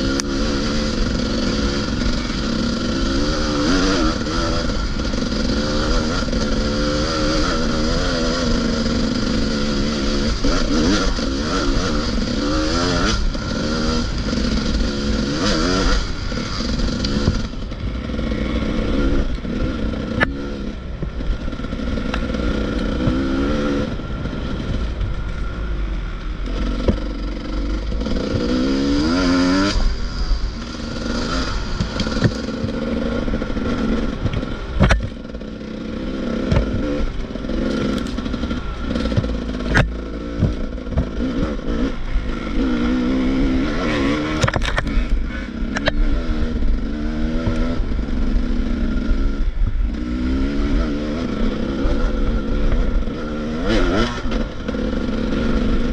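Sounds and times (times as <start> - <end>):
motorcycle engine revving: 0.0 - 55.9
bike knocking and clattering: 34.2 - 35.5, 37.6 - 41.5.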